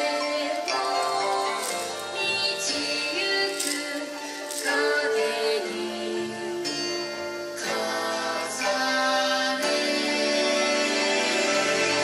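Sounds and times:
dance music with held notes: 0:00.0 - 0:12.0.

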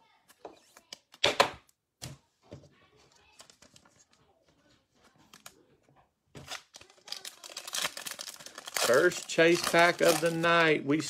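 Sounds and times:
cards clicking and rustling: 0:06.4 - 0:10.7.

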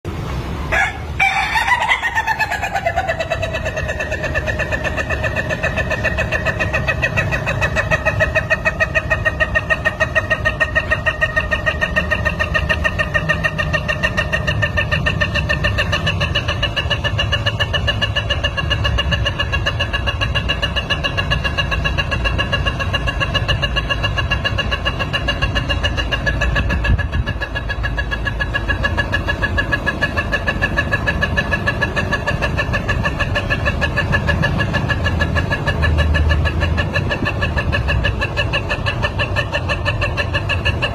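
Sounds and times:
rooster crowing: 0:00.7 - 0:05.2.

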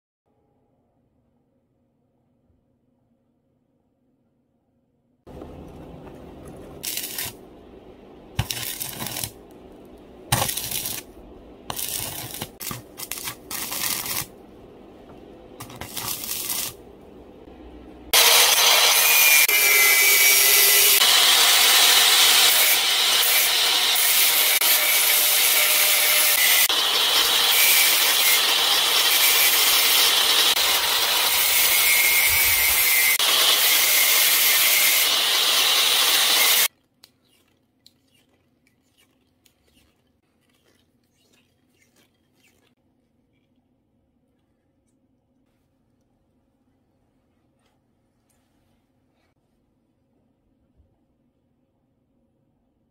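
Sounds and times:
arc welding crackling: 0:06.8 - 0:07.4, 0:08.4 - 0:09.5, 0:10.3 - 0:11.1, 0:11.7 - 0:14.3, 0:15.6 - 0:16.8, 0:21.4 - 0:36.7
angle grinder grinding steel: 0:18.2 - 0:36.7.

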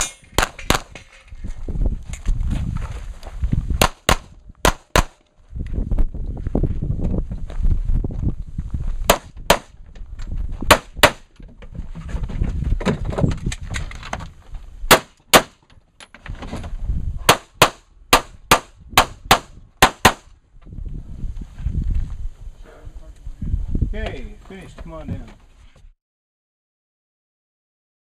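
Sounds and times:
handgun shots: 0:03.8 - 0:05.2, 0:14.9 - 0:15.6.

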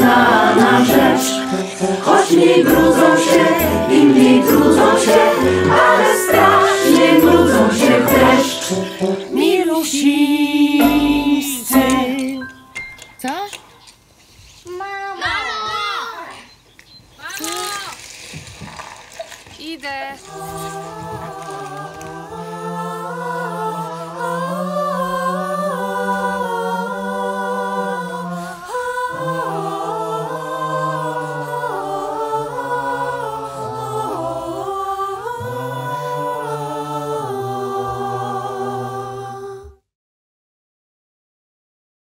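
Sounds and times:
voices singing in harmony: 0:00.0 - 0:12.7, 0:20.2 - 0:39.8.

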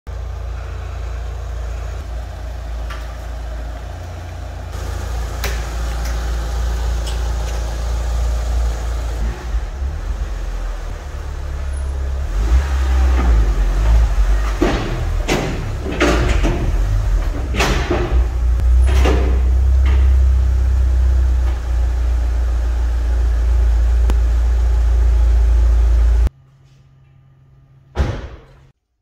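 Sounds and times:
car engine rumbling: 0:00.1 - 0:26.4.

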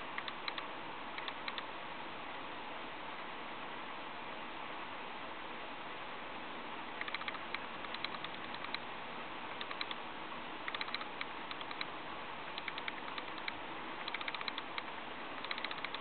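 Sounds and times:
quick light clicks: 0:00.2 - 0:01.7, 0:07.0 - 0:08.8, 0:09.6 - 0:10.0, 0:10.7 - 0:11.9, 0:12.6 - 0:16.0.

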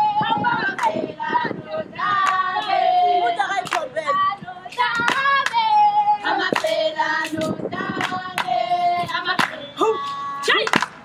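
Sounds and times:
girls singing together: 0:00.0 - 0:10.9
sharp hand claps: 0:03.6 - 0:03.9, 0:10.6 - 0:11.0.

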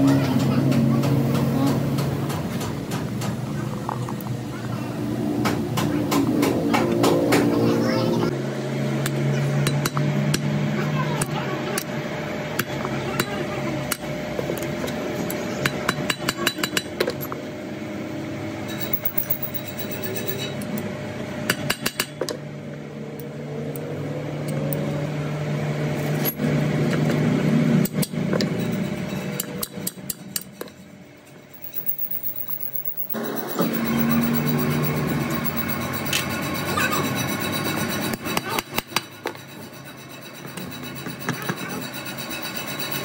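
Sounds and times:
steady low hum: 0:17.0 - 0:43.0.

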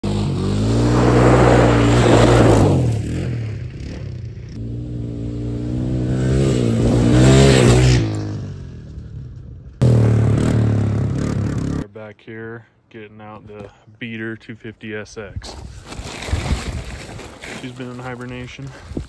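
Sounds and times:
engine revving hard: 0:04.6 - 0:08.2.

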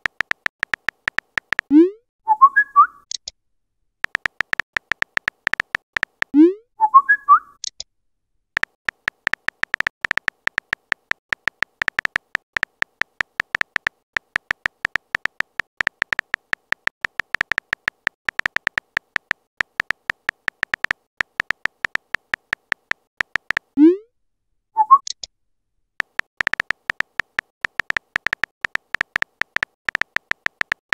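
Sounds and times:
electronic keyboard clicks: 0:00.0 - 0:01.8, 0:04.0 - 0:06.5, 0:08.6 - 0:23.8, 0:26.0 - 0:30.9.

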